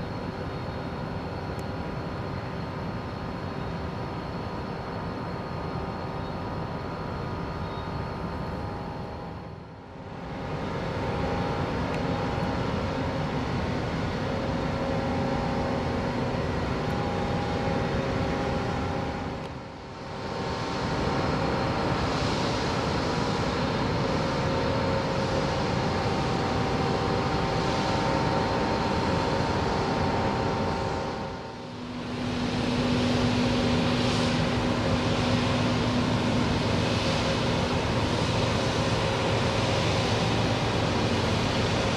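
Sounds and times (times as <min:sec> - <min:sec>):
ship engines droning: 0:28.4 - 0:41.9.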